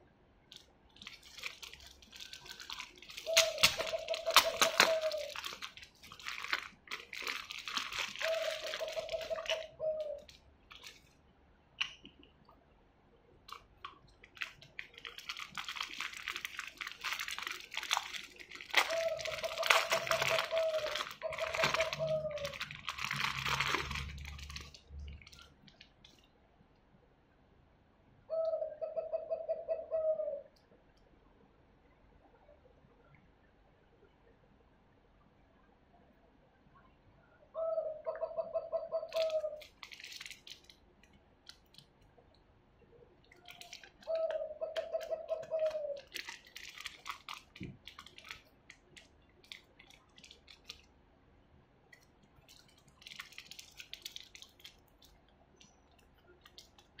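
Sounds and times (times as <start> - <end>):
plastic packaging crinkling: 0.5 - 11.2, 13.4 - 26.3, 39.1 - 42.1, 43.3 - 50.9, 51.9 - 57.0.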